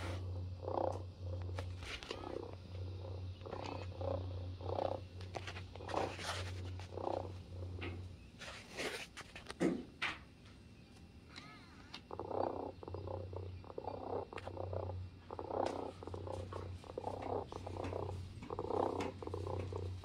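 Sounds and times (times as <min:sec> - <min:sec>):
robotic toy cat purring: 0:00.0 - 0:09.0, 0:11.3 - 0:20.0.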